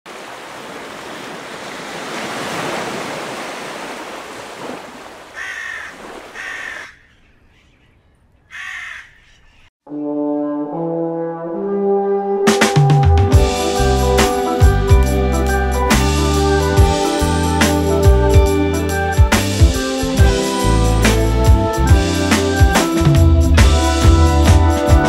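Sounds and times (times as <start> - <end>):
crow cawing: 5.3 - 7.8, 8.4 - 9.7
french horn long notes: 9.9 - 15.4.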